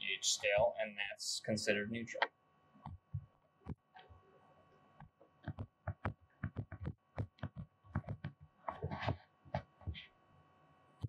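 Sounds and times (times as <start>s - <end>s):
stylus tapping on tablet screen: 5.4s - 9.7s.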